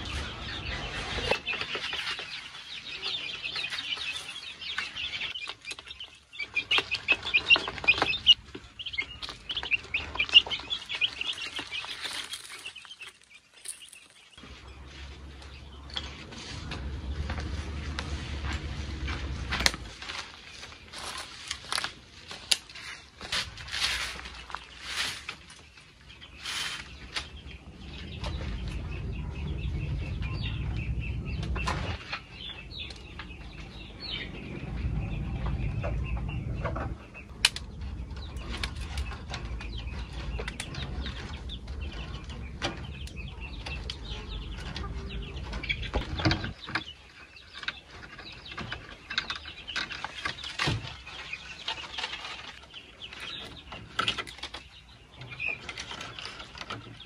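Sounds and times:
handling clicks and scrapes: 6.6 - 27.5
plastic netting rustling: 9.4 - 14.4
low rumble: 14.4 - 21.0, 26.1 - 46.7.

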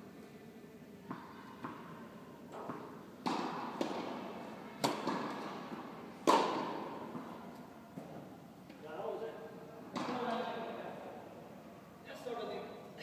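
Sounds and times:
racket hitting tennis ball: 1.1 - 7.4, 9.9 - 10.4
tennis ball taps: 2.5 - 4.1.

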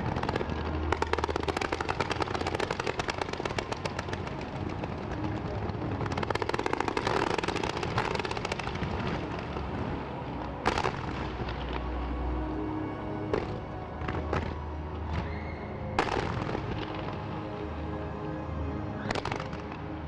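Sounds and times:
fireworks going off: 0.0 - 10.0, 10.6 - 11.8, 16.0 - 17.2.

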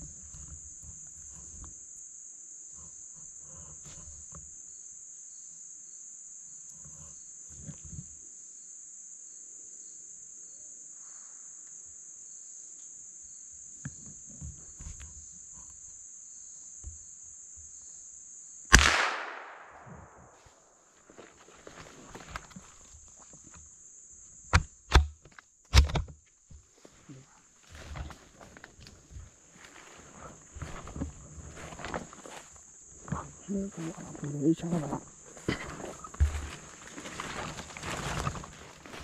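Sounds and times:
insects droning: 0.0 - 39.0
gunshot: 18.7 - 20.4
faint rustling: 26.5 - 39.0.

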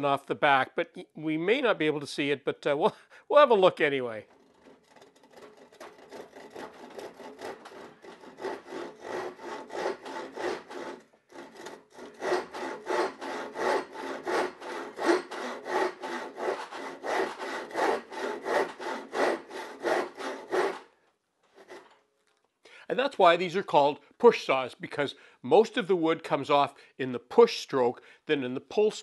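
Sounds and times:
hand saw cutting wood: 4.3 - 20.9, 21.5 - 22.0.

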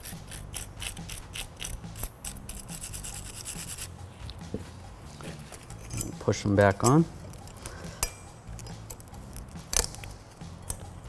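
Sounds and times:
wire brush scrubbing metal: 0.0 - 3.9.

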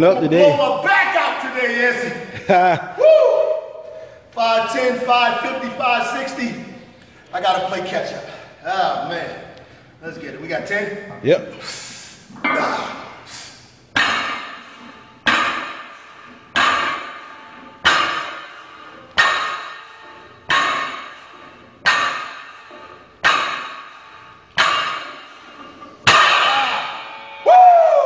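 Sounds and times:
weight plates clanking down: 12.3 - 13.2, 14.0 - 27.9.

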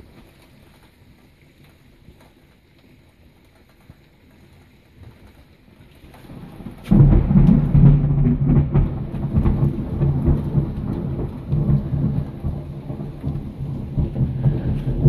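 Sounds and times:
heavy rain hiss: 0.0 - 15.0
thunder rumbling: 6.1 - 15.0.

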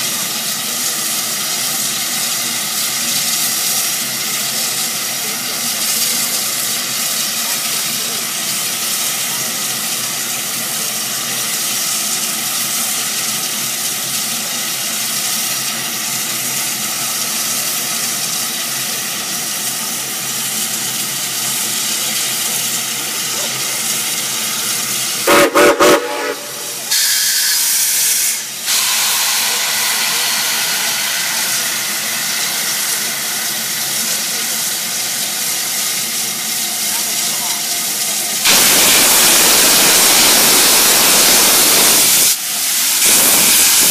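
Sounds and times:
rush of escaping steam: 0.0 - 43.9
steam locomotive hissing: 0.0 - 43.9
steam whistle blast: 25.2 - 31.1.

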